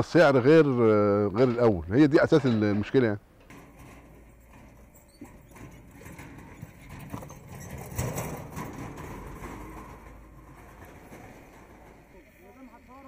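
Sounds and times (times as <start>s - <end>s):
cart knocking and rattling: 3.4s - 12.6s.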